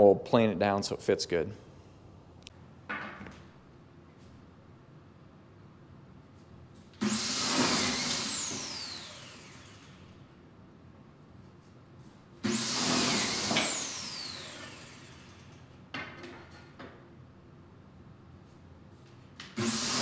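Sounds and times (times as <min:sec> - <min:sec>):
electric drill motor whining: 0:07.0 - 0:10.2, 0:12.5 - 0:15.4.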